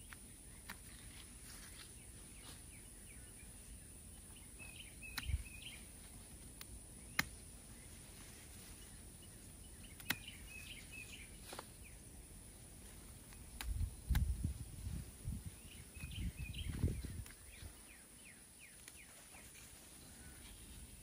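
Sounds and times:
faint background noise: 0:00.0 - 0:21.0
small birds twittering: 0:00.0 - 0:21.0
sharp clicks: 0:06.6 - 0:07.4, 0:09.9 - 0:10.4, 0:13.3 - 0:14.4.

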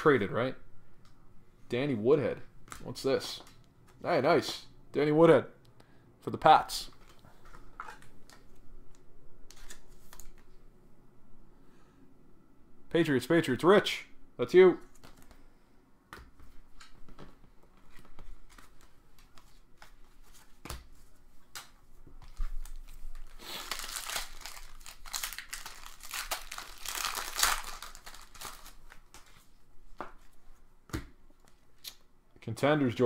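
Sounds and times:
wrapper clicks and rustles: 0:22.2 - 0:29.4
foil pack tearing open: 0:22.7 - 0:29.1.

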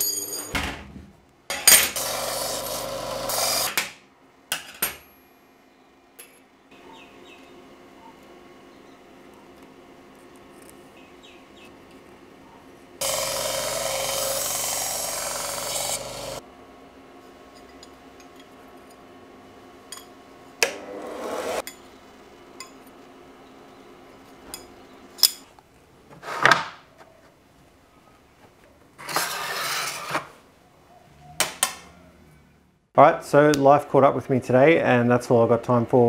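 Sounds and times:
bench grinder grinding steel: 0:01.5 - 0:03.8, 0:13.0 - 0:16.4, 0:20.7 - 0:21.8.

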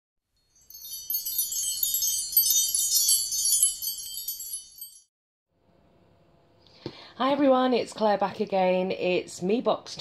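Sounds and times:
wind chimes tinkling: 0:00.4 - 0:05.1.

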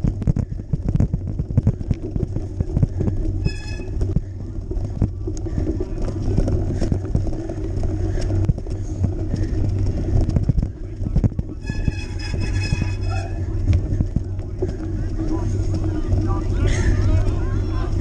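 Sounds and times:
bike frame knocks and rattles: 0:00.0 - 0:15.0
bike tyres rumbling on dirt: 0:00.0 - 0:18.0
short high ringing tone: 0:03.4 - 0:04.0.

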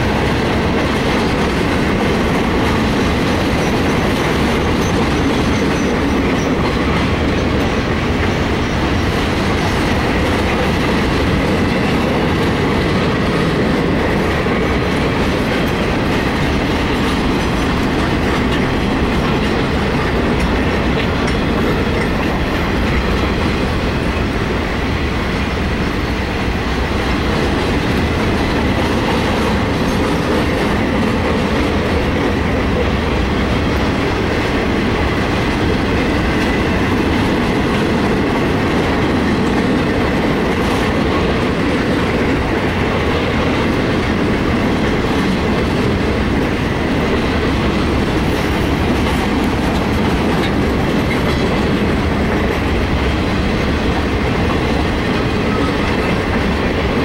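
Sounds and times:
freight train wheels rumbling on rail: 0:00.0 - 0:57.0.

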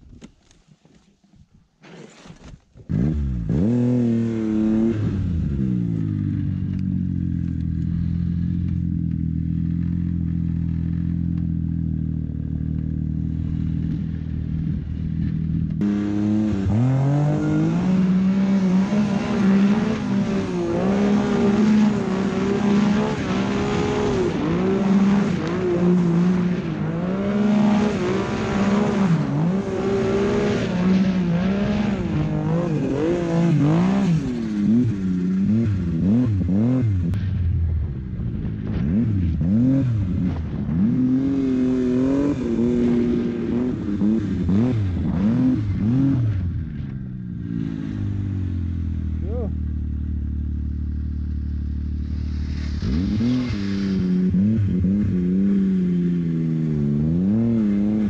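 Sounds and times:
snowmobile engine revving: 0:02.9 - 0:11.4, 0:15.8 - 0:37.2, 0:38.6 - 0:46.9, 0:47.5 - 0:58.0.

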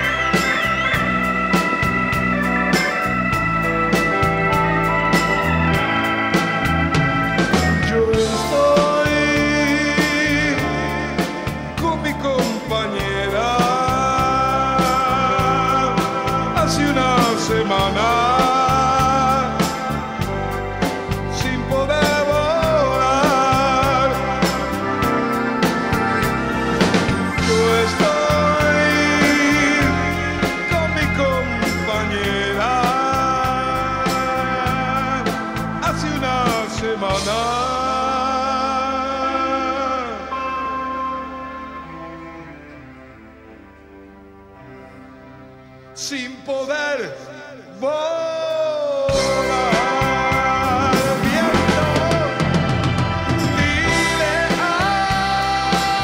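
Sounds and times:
drums beat: 0:00.0 - 0:37.4, 0:49.2 - 0:56.0
bending lead melody: 0:00.0 - 0:47.8, 0:49.1 - 0:56.0
keyboard chords: 0:00.0 - 0:56.0
live rock band playing: 0:00.0 - 0:56.0.

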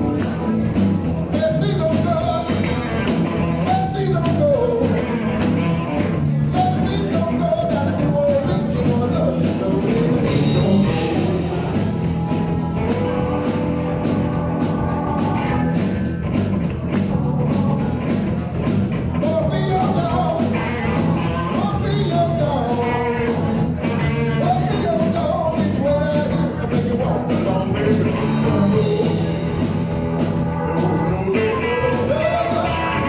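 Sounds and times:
blues-rock band playing: 0:00.0 - 0:33.0
drums beating: 0:00.0 - 0:33.0.

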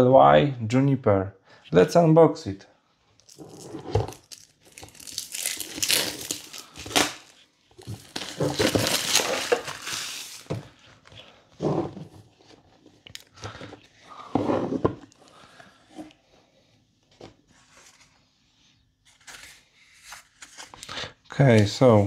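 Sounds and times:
plastic shrink wrap crinkling: 0:03.2 - 0:10.6.

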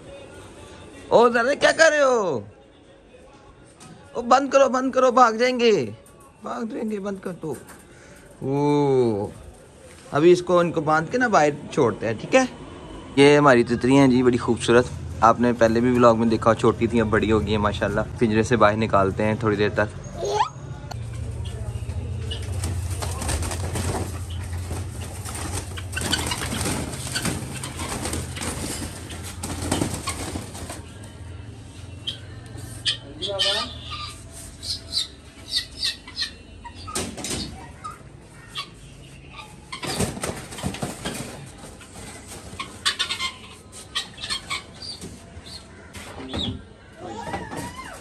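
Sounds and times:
cage rattling: 0:21.2 - 0:31.2
birds flapping wings: 0:22.0 - 0:31.2, 0:39.7 - 0:43.3
birds scrabbling against wire: 0:22.2 - 0:30.9.

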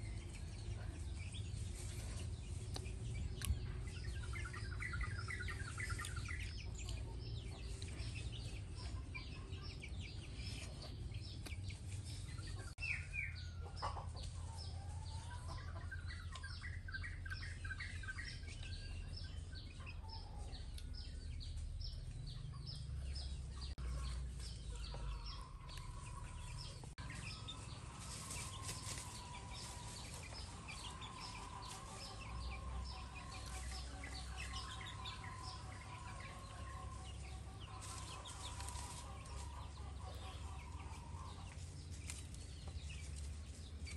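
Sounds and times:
birds chirping and calling: 0:00.0 - 0:43.9.

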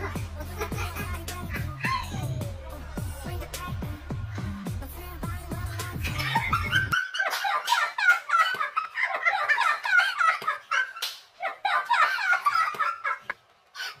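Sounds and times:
women laughing loudly: 0:06.0 - 0:14.0.

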